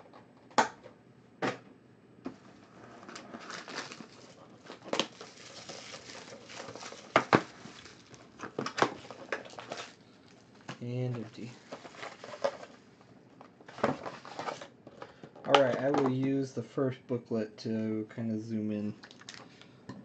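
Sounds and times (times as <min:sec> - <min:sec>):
cardboard rustling and sliding: 0:02.4 - 0:10.0, 0:11.0 - 0:12.8, 0:13.7 - 0:14.7.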